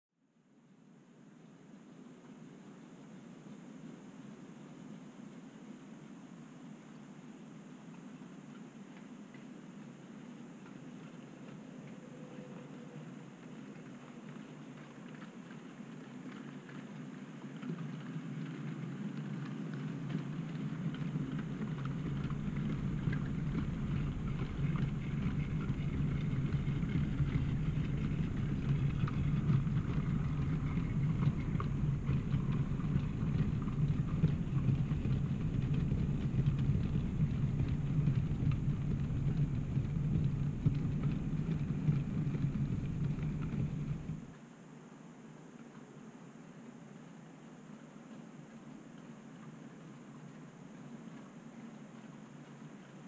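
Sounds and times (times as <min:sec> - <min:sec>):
model train rumbling on track: 0:17.1 - 0:44.3.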